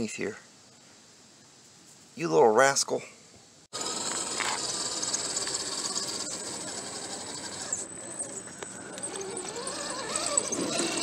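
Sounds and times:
toy car motor whirring: 3.8s - 11.0s.

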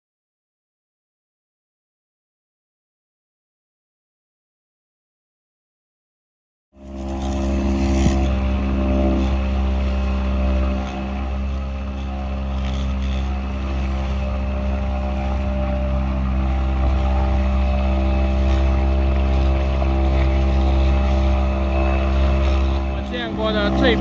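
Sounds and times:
outboard motor running: 6.8s - 24.0s.

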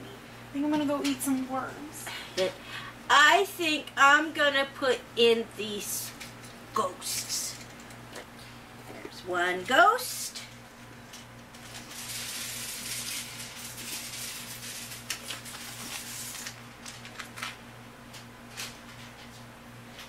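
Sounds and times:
steady low hum: 0.0s - 20.0s
packaging rustling: 11.1s - 17.6s.

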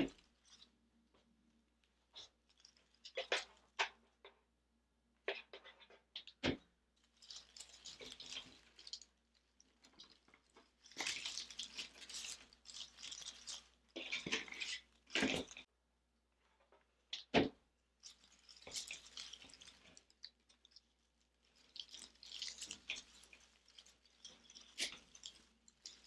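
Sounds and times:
artificial greenery rustling: 1.8s - 3.7s, 7.0s - 15.7s, 18.0s - 26.0s.

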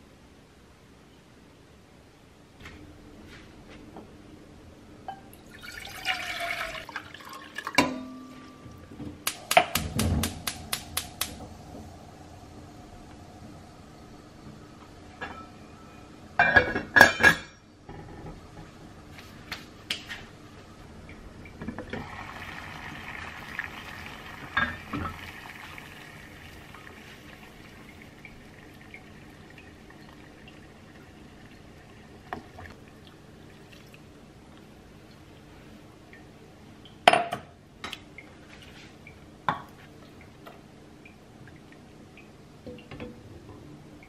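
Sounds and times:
water boiling in saucepan: 5.1s - 19.1s, 20.5s - 36.2s.

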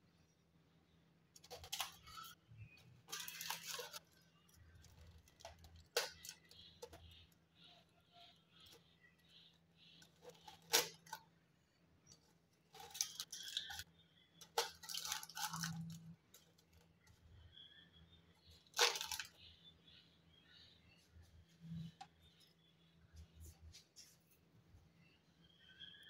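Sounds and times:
aluminium foil crinkling and tearing: 1.4s - 7.1s, 10.0s - 11.3s, 12.7s - 16.8s, 18.7s - 19.4s.

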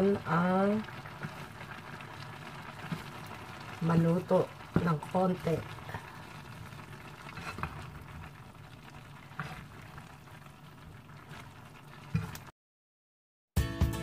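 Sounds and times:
food simmering in a frying pan: 0.0s - 12.5s
wooden spatula knocking a pan: 4.7s - 5.0s.

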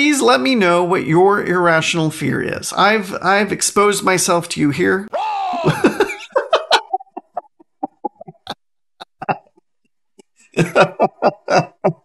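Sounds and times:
man chuckling: 5.1s - 9.6s, 10.6s - 12.0s.

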